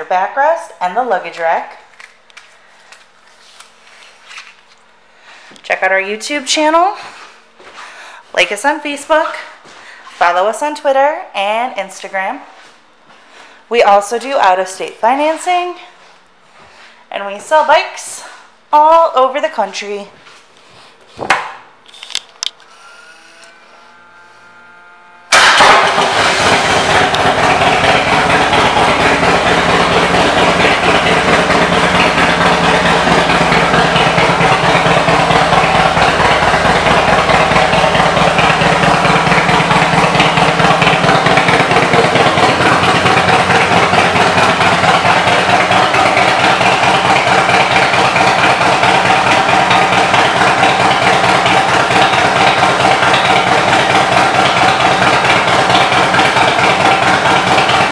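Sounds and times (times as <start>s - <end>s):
motorcycle engine starting and idling: 22.5s - 57.9s.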